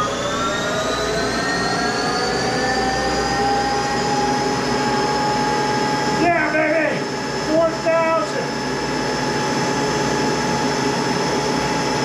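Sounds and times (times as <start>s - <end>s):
lathe spindle whine: 0.0s - 12.0s.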